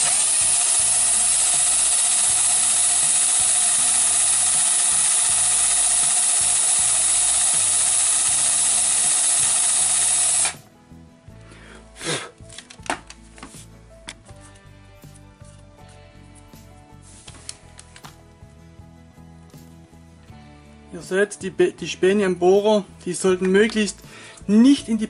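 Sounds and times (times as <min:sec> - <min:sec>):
power drill boring into plastic: 0:00.0 - 0:10.6.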